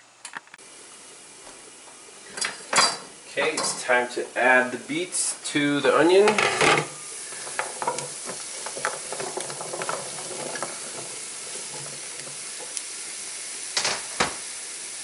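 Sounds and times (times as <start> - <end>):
onions sizzling: 0.0 - 15.0
vegetable pieces dropping into pan: 6.3 - 12.9.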